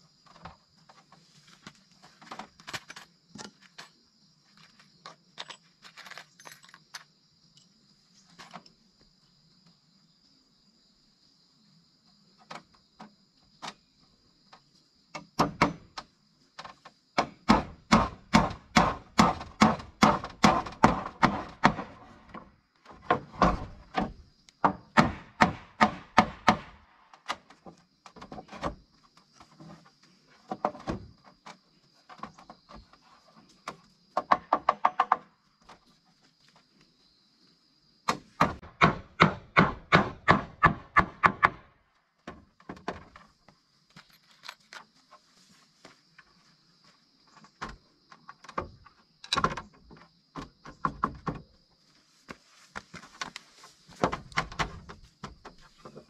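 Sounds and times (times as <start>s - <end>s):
hammer driving nails into wood: 17.2s - 22.0s, 23.1s - 26.8s, 38.1s - 41.6s.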